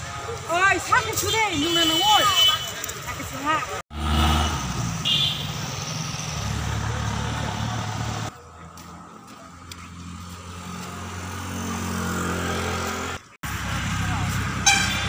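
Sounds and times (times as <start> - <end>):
road traffic engines: 0.0 - 15.0.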